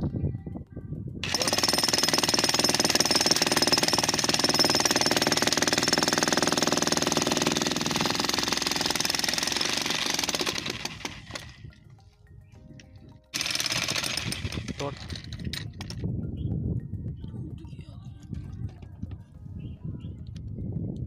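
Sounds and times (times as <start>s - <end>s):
demolition breaker hammering concrete: 1.2s - 11.6s, 13.4s - 16.0s.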